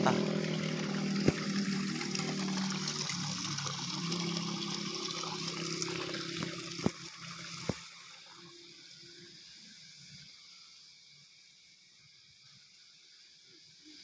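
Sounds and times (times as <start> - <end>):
low steady hum: 0.0 - 10.5
water running and trickling: 0.0 - 14.0.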